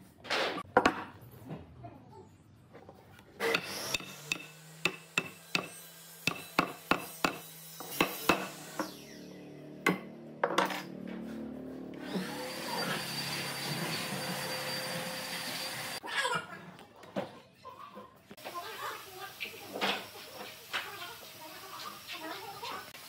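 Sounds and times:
motor spinning up: 0:08.6 - 0:09.8, 0:11.9 - 0:16.0.

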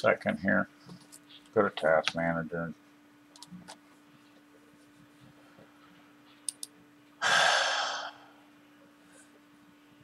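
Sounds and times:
faint steady hum: 0:00.0 - 0:10.0
mouse clicks: 0:06.4 - 0:06.7
heavy sigh: 0:07.2 - 0:08.4.

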